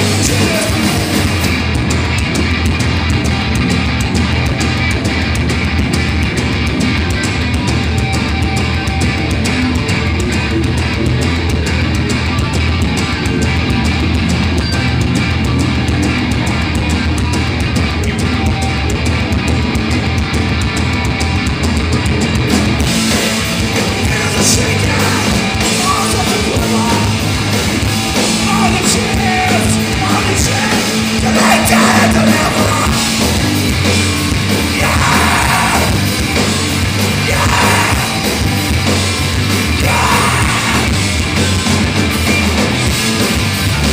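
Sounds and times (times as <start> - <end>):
person singing: 0.0 - 1.4, 23.1 - 27.2, 28.3 - 33.2, 34.6 - 36.0, 37.2 - 38.3, 39.7 - 41.0
loud live rock band: 0.0 - 43.9.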